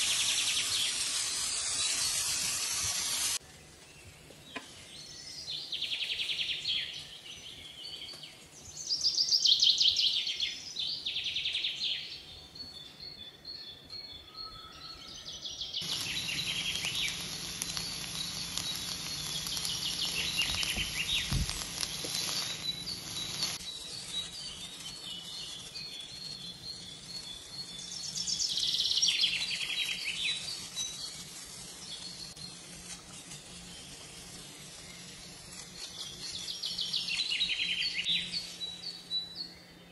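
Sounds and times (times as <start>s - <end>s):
vegetables stir-frying hiss: 0.0s - 3.4s, 15.8s - 26.4s, 27.0s - 37.1s
bird chirping trills: 4.6s - 39.9s.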